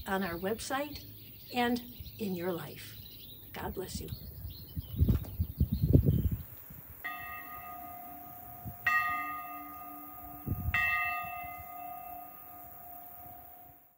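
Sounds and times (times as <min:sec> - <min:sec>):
church bell ringing: 0:07.0 - 0:13.9.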